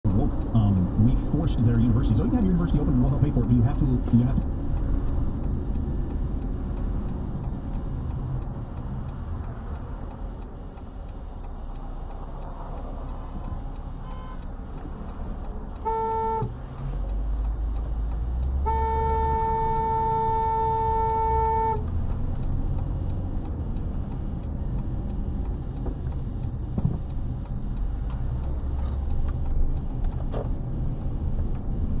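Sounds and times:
road and engine noise: 0.0 - 32.0
car horn: 14.0 - 14.5, 15.8 - 16.6, 18.6 - 21.9.

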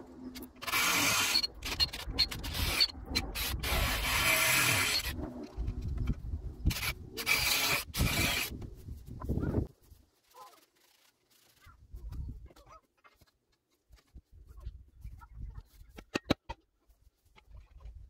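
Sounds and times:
cordless drill drilling into wood: 0.6 - 1.8, 3.4 - 5.2, 6.7 - 8.5.

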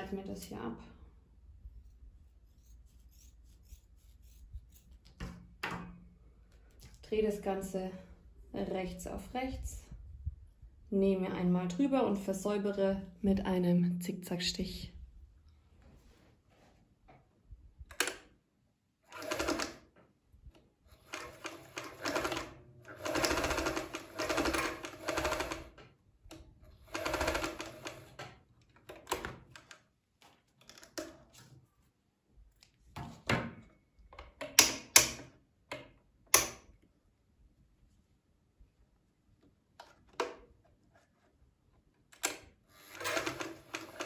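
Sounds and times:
sewing machine stitching: 19.1 - 19.8, 20.9 - 25.8, 26.7 - 28.2, 42.8 - 44.0.

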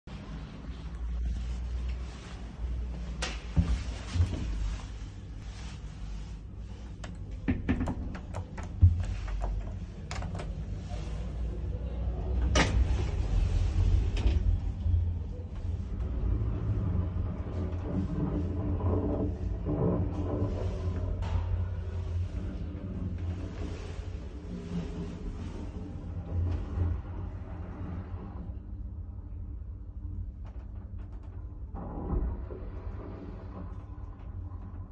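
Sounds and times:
elevator car rumbling hum: 0.1 - 34.9
clicks and knocks: 7.0 - 10.6
elevator doors shutting: 7.0 - 28.6.

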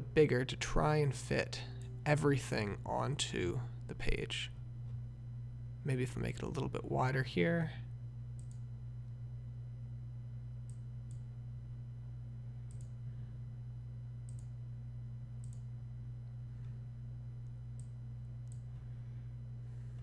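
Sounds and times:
low electrical hum: 0.0 - 20.0
computer mouse clicks: 8.4 - 8.7, 10.7 - 11.3, 12.7 - 13.0, 14.3 - 14.6, 15.4 - 15.7, 17.4 - 18.7.

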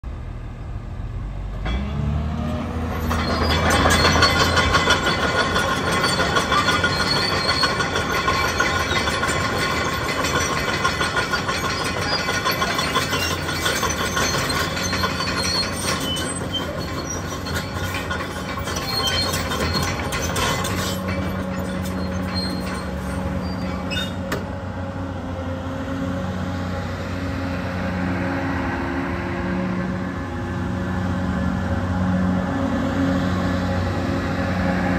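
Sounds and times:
excavator diesel engine: 0.0 - 34.9
high squeals: 2.7 - 24.3
metal clanks: 2.9 - 24.5.

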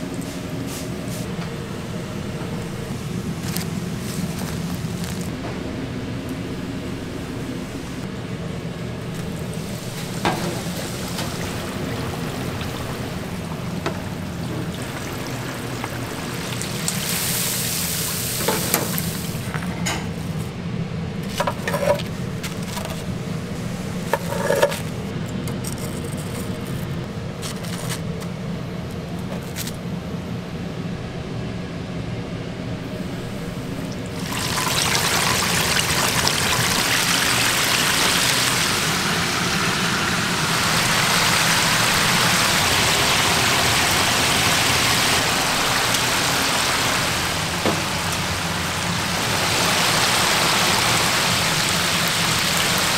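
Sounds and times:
fryer low hum: 0.0 - 52.9
oil sizzling in deep fryer: 7.3 - 19.6, 33.3 - 52.9.

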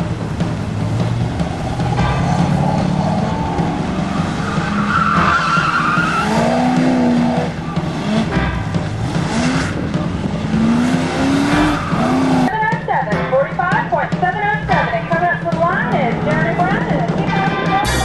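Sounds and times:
car engine revving: 0.0 - 12.6
tire squeal: 0.6 - 12.5.

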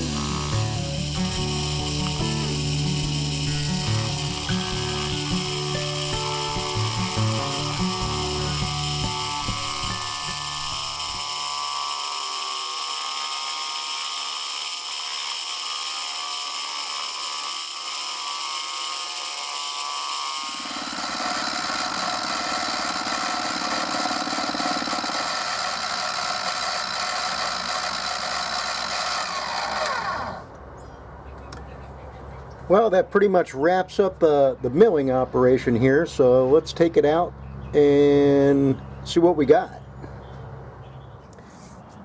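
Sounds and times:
milling machine cutting metal: 0.0 - 30.5.

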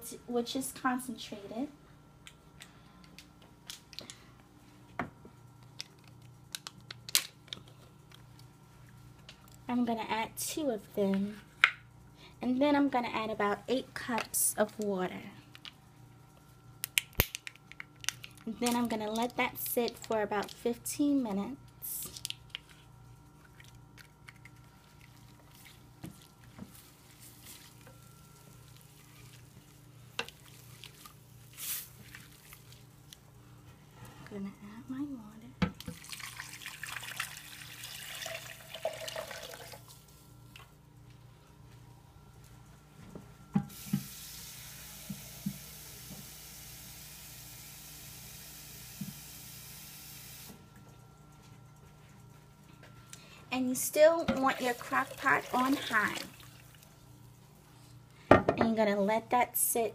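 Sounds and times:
steady low hum: 0.0 - 37.2, 37.8 - 59.9
spoon stirring onions squishing: 23.4 - 33.2.

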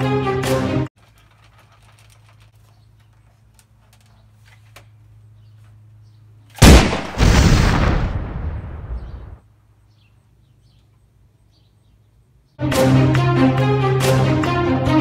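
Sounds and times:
background music: 0.0 - 0.9, 12.6 - 15.0
loud bang: 6.6 - 9.4.

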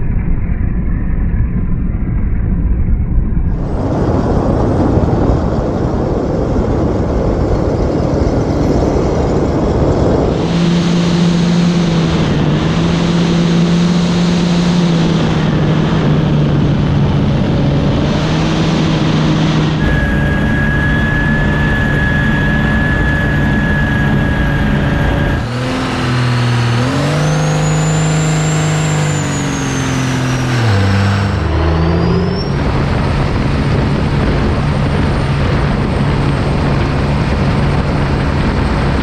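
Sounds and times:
wind and water noise: 3.4 - 39.0
boat diesel engine revving: 8.2 - 39.0
turbo whistle: 19.8 - 25.7.

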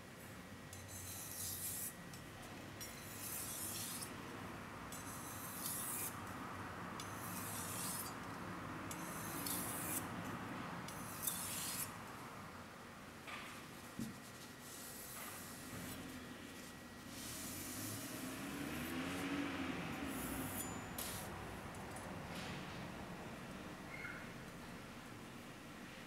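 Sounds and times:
knife scraping on whetstone: 0.8 - 2.0, 2.9 - 4.1, 5.0 - 6.2, 7.2 - 8.2, 9.0 - 10.0, 10.9 - 11.9.

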